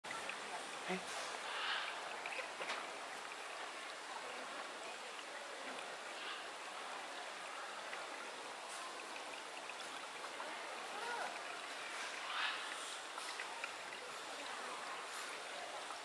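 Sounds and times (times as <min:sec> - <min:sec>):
outdoor background hiss: 0:00.1 - 0:16.0
faint ticks: 0:11.2 - 0:14.0.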